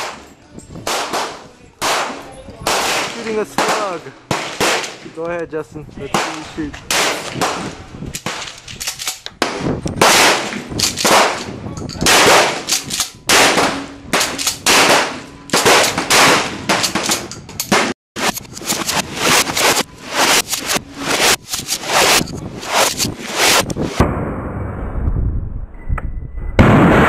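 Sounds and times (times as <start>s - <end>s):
shotgun shots with echo: 0.8s - 5.1s, 6.1s - 8.5s, 9.4s - 12.7s, 13.3s - 18.3s.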